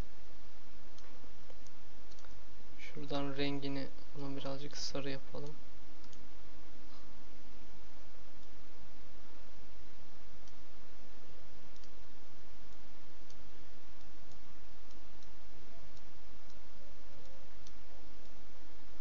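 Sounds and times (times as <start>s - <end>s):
microphone hiss and hum: 0.0s - 19.0s
computer mouse clicking: 5.4s - 6.2s, 11.7s - 12.0s.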